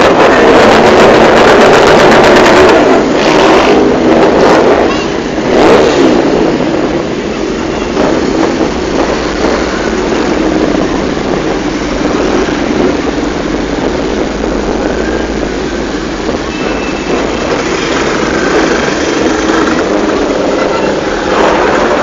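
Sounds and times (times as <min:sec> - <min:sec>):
motorcycles rolling past: 0:17.2 - 0:22.0.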